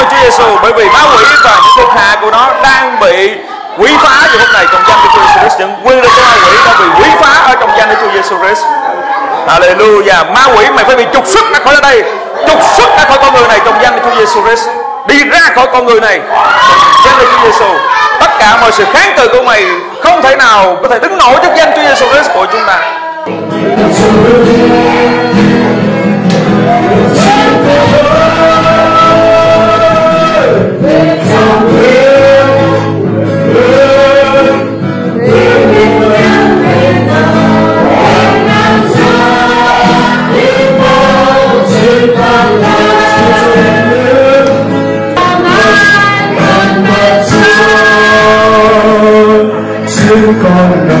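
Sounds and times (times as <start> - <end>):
voices singing slow melody: 23.1 - 51.0
instrumental accompaniment: 23.3 - 51.0.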